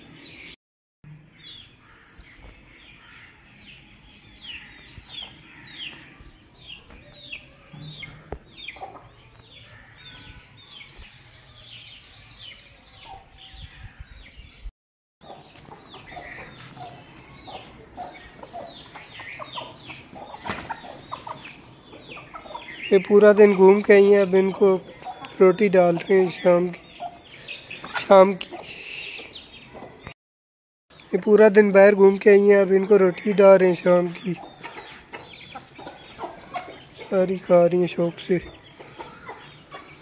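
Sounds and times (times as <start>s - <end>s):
chicks peeping: 1.4s - 14.6s, 15.2s - 30.1s, 31.2s - 40.0s
chickens clucking: 4.4s - 9.6s, 15.2s - 30.2s, 31.2s - 40.0s.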